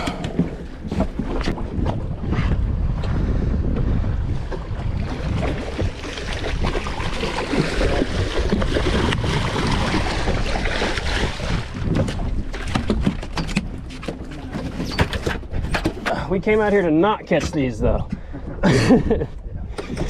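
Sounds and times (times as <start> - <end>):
boat engine rumble: 0.0 - 20.0
wind buffeting microphone: 0.0 - 20.0
rushing water: 4.8 - 17.7.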